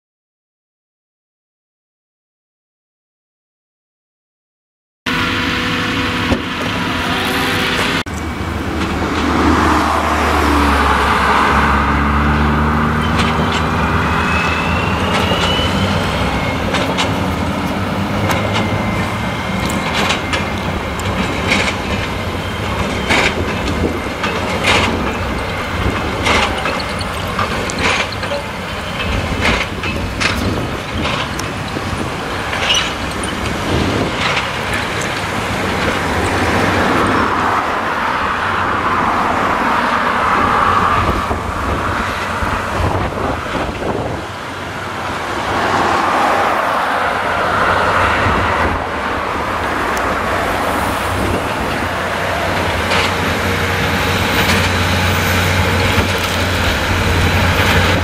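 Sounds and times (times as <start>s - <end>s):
tractor engine under load: 5.1s - 37.8s, 39.4s - 58.0s
baler machinery knocking: 15.0s - 36.5s.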